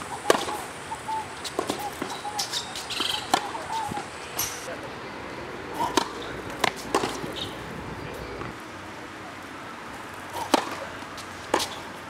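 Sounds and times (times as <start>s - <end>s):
tennis ball bouncing on hard court: 0.2s - 4.6s, 5.7s - 7.6s, 10.4s - 11.9s
tennis ball struck by rackets: 0.2s - 4.6s, 5.7s - 7.6s, 10.3s - 11.9s.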